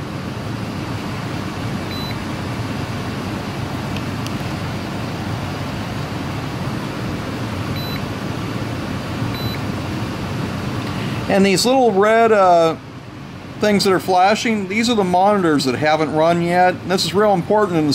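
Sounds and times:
steady low hum: 0.0s - 17.9s
short high electronic beeps: 1.9s - 2.2s, 7.8s - 8.0s, 9.4s - 9.6s.

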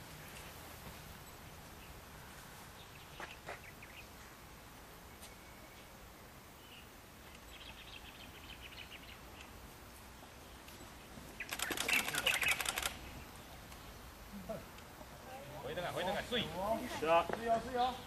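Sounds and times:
faint bird chirping: 0.0s - 16.4s
loud rapid fluttering rattle: 11.4s - 13.0s.

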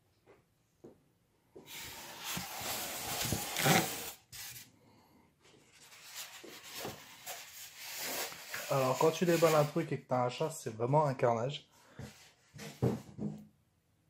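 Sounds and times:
cardboard scraping and rustling: 1.7s - 4.6s.

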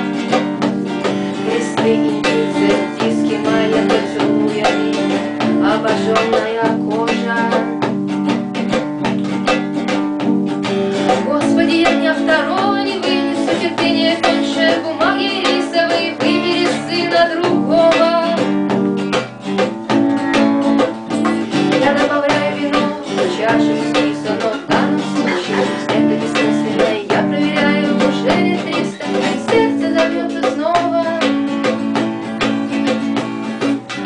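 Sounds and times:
acoustic guitar strumming: 0.0s - 34.0s
hand drum tapping: 0.0s - 34.0s
woman singing: 0.9s - 7.9s, 11.1s - 18.8s, 21.2s - 32.0s.

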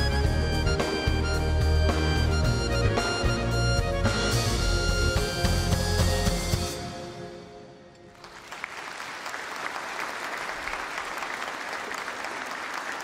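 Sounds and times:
live band chord with accordion: 0.0s - 7.8s
audience applauding: 8.1s - 13.0s.

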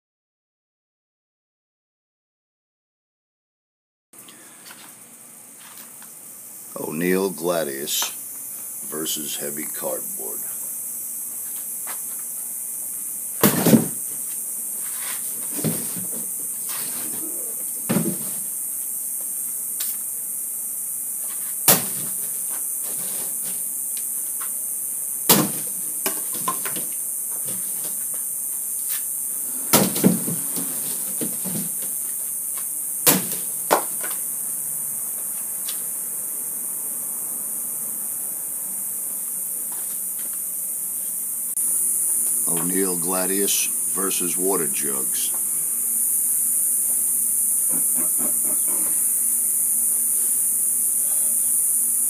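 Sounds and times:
insects hissing: 4.2s - 52.0s
sword chopping cardboard: 13.4s - 14.0s, 21.6s - 22.2s.

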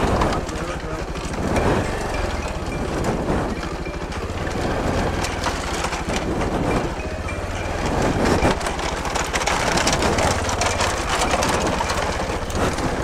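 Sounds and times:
motorcycle engine at low revs: 0.0s - 13.0s
bamboo slats clattering: 3.9s - 13.0s.

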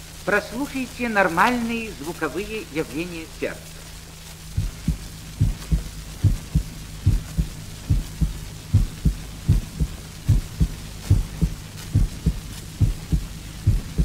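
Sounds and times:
low hum: 0.0s - 14.0s
record surface hiss: 0.0s - 14.0s
heartbeat lub-dub: 4.4s - 14.0s.

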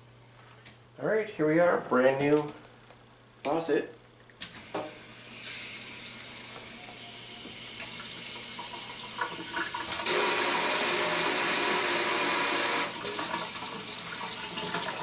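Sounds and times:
faucet water running into sink: 4.5s - 15.0s.

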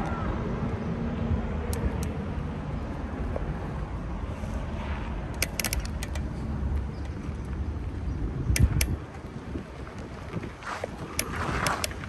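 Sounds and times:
bicycle road noise: 0.0s - 12.0s
wind rumble on microphone: 0.0s - 12.0s
quick run of clicks: 5.3s - 7.2s, 8.5s - 10.0s, 10.7s - 12.0s.

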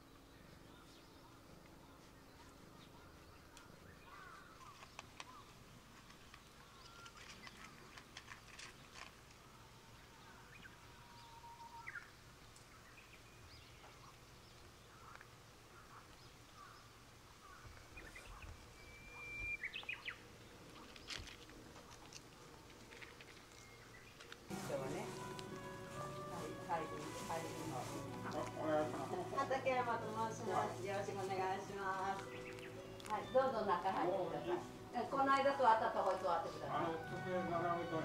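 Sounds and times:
bird chirps: 17.4s - 21.1s, 31.6s - 34.7s.

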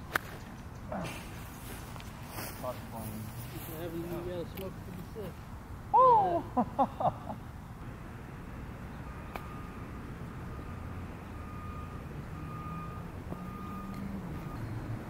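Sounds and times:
reversing alarm beeping: 9.0s - 15.0s.

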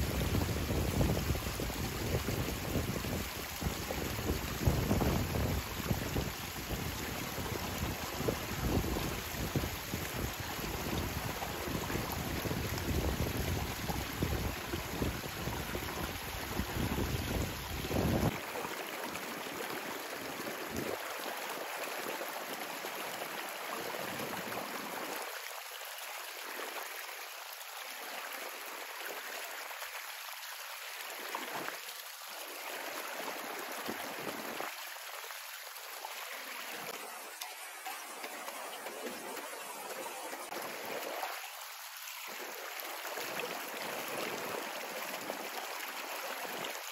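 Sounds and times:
wind buffeting microphone: 0.0s - 18.4s
river water flowing: 0.0s - 46.9s.

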